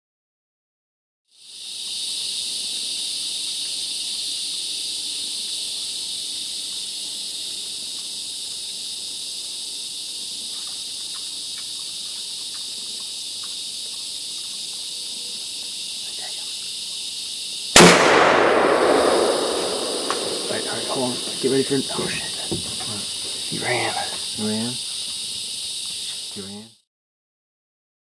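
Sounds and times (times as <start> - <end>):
insects buzzing chorus: 1.3 - 26.8
faint ticks: 10.5 - 14.9.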